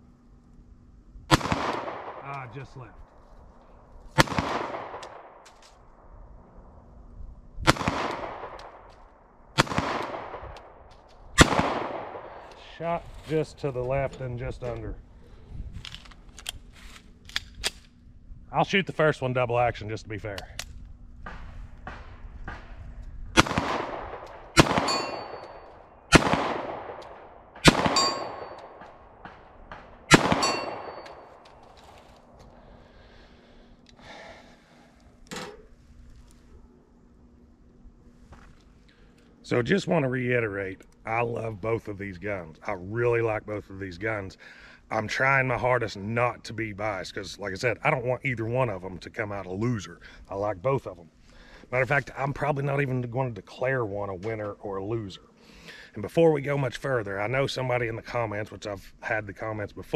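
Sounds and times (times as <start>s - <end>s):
handgun shots with echo: 23.4s - 31.4s
steel plate target ringing: 24.6s - 25.7s, 27.6s - 28.8s, 30.1s - 31.3s.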